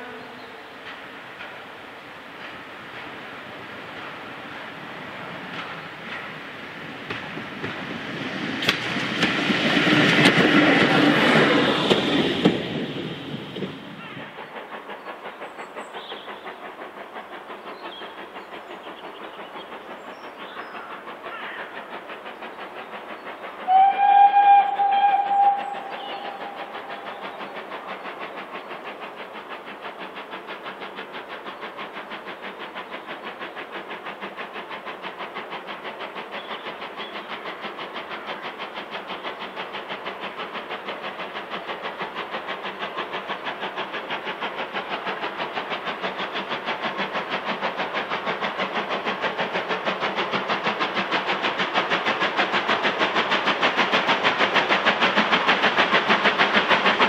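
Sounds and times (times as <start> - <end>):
steam locomotive exhaust beating: 0.0 - 57.0
steam whistle: 23.6 - 26.8.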